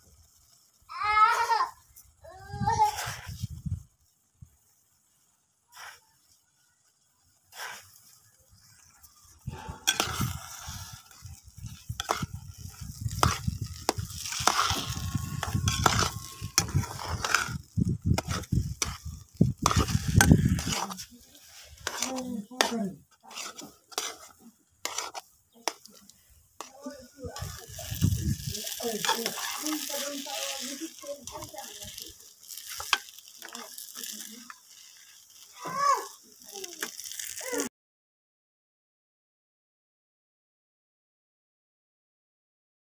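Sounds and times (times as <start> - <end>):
food sizzling: 0.0 - 37.7
metal spatula scraping a pan: 2.8 - 3.5, 5.7 - 6.0, 7.4 - 35.8.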